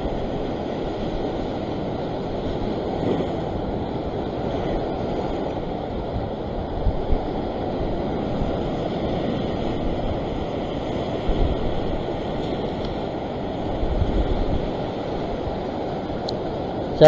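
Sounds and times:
sea swell washing over rock: 0.0 - 17.0.

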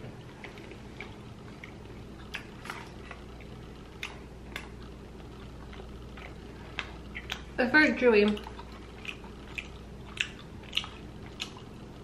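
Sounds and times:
steady low hum: 0.0 - 12.0
wet mouth clicks chewing: 0.4 - 7.5, 8.2 - 11.8.

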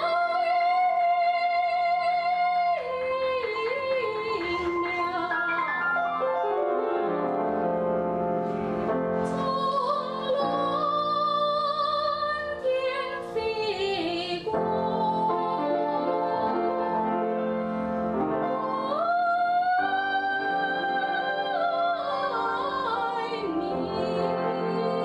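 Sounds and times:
woman singing operatically: 0.0 - 5.6, 9.3 - 17.0, 18.5 - 25.0
grand piano: 0.0 - 25.0.

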